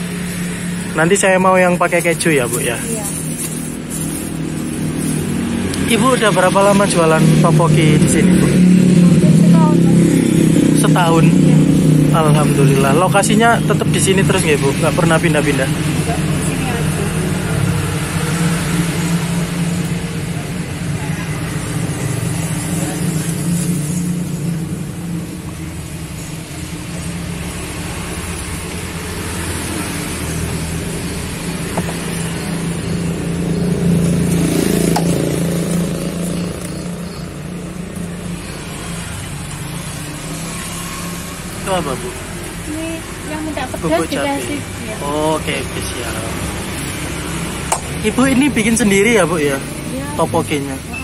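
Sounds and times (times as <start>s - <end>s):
vehicle engine humming: 0.0s - 51.0s.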